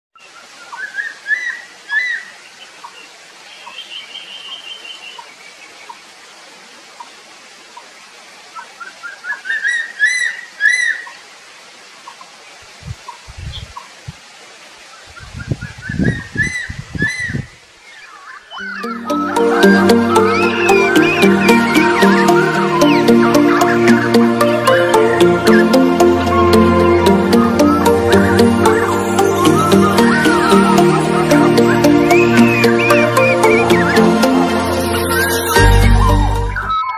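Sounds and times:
bird singing rising notes: 18.4s - 36.9s.

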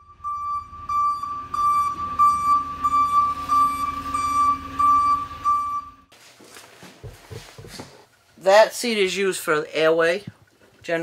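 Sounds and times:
low engine rumble: 0.0s - 6.1s
pulsing warning beeper: 0.0s - 6.1s.

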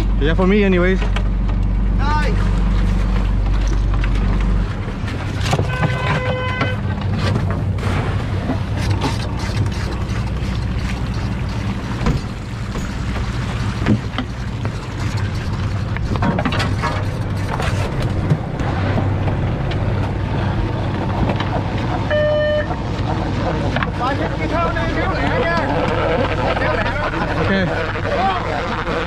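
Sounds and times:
gear knocking and clanking: 0.0s - 22.1s
boat engine running: 0.0s - 29.0s
wind: 0.0s - 29.0s
rushing water: 2.6s - 29.0s.

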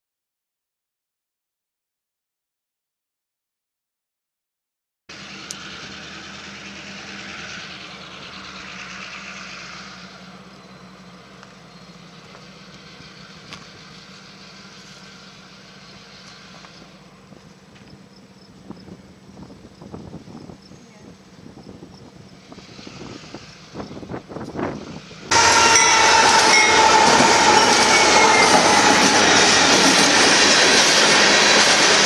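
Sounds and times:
low engine hum: 5.1s - 25.9s
rushing noise: 22.4s - 32.0s.

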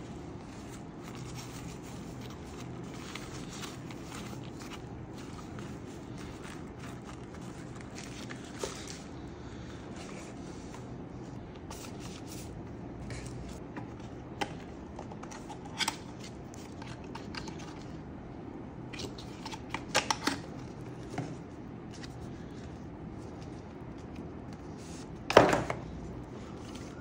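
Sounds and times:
steady low hum: 0.0s - 27.0s
packaging clicks and rustles: 0.6s - 9.2s.

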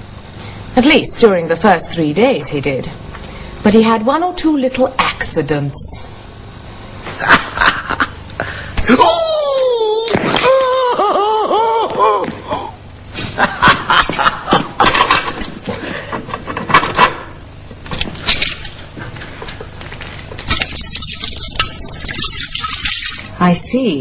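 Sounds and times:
water spraying from tap: 20.8s - 23.3s.

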